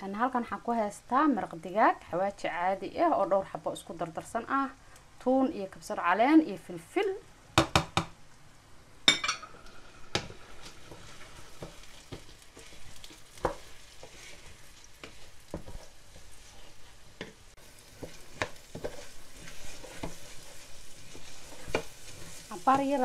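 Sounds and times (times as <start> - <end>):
rice sizzling in oil: 0.0 - 23.0
wooden spoon scraping and knocking: 9.6 - 23.0.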